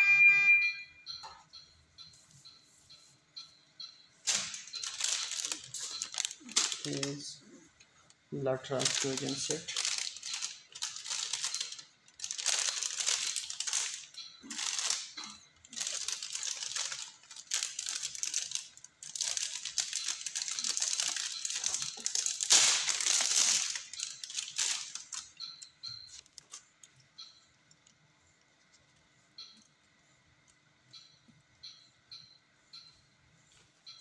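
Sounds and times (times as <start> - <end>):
plastic packaging crinkling: 4.3 - 7.4, 8.0 - 26.9.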